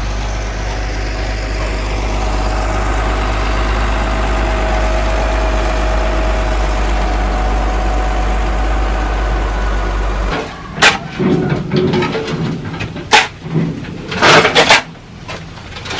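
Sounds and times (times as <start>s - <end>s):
diesel engine running steadily: 0.0s - 10.9s.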